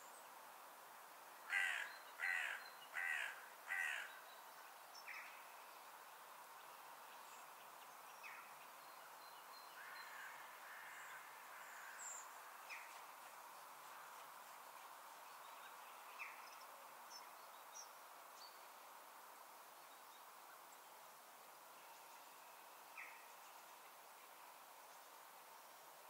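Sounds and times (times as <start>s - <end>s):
faint background hiss: 0.0s - 26.0s
crow cawing: 1.5s - 4.1s, 9.8s - 11.2s.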